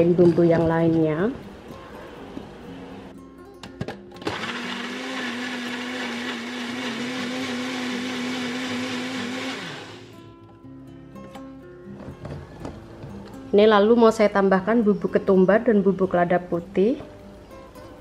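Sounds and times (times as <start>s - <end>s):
blender motor whining: 4.2s - 10.1s.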